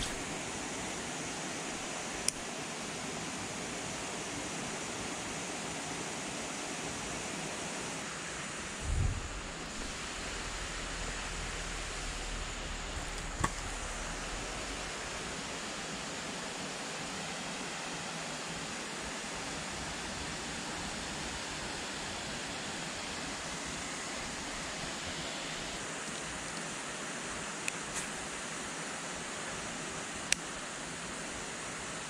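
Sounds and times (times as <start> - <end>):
steady outdoor rushing noise: 7.0 - 17.7.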